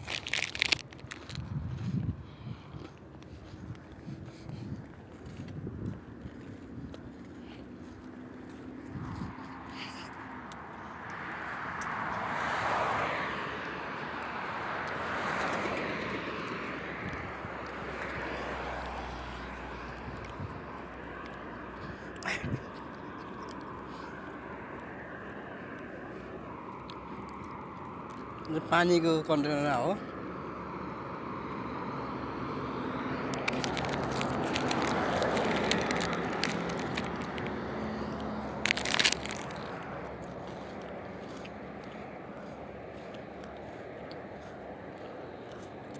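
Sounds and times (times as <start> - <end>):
sharp crackles and clicks: 0.0 - 1.4, 33.3 - 37.6, 38.6 - 39.8
cars passing: 0.0 - 45.9
road traffic noise: 0.0 - 45.9.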